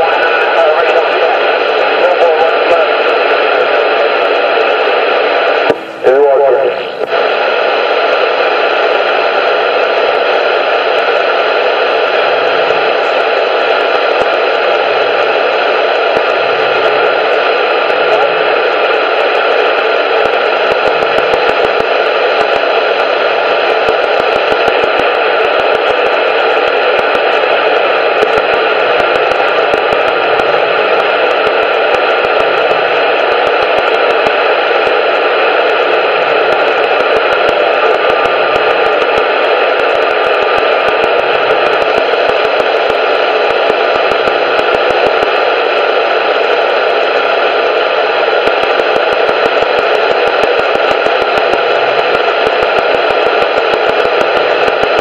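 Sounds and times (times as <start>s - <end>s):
faint crackles: 0.0s - 55.0s
radio static hiss: 0.0s - 55.0s.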